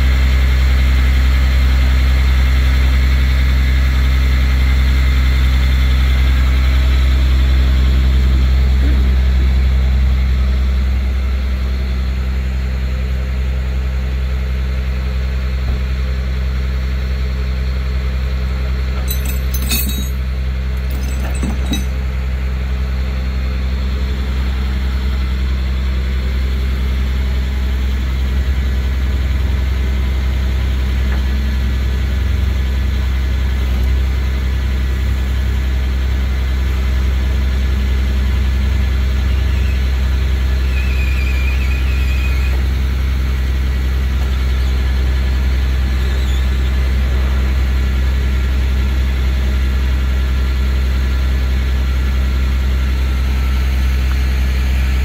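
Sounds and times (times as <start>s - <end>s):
faint high squeal: 39.2s - 42.8s, 45.6s - 47.1s.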